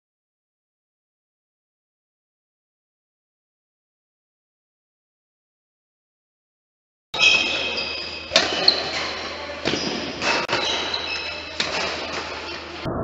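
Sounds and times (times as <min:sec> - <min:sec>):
shoes squeaking on court: 0:07.2 - 0:12.8
racket striking shuttlecock: 0:08.3 - 0:12.4.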